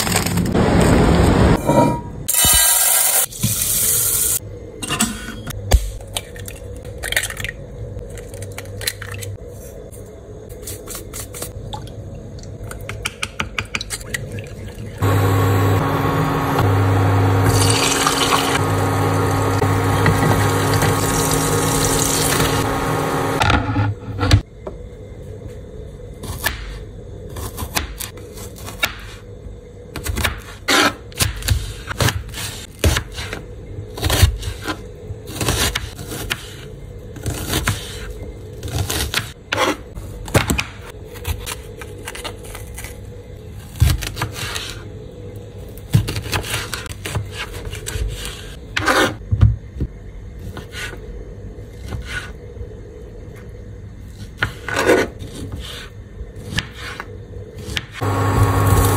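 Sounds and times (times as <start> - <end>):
knife scraping board: 46.2 - 49.2, 51.8 - 52.4, 54.2 - 57.1.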